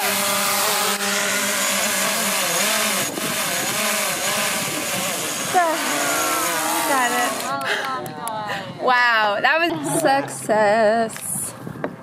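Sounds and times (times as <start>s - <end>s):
drone propellers whining: 0.0s - 7.6s.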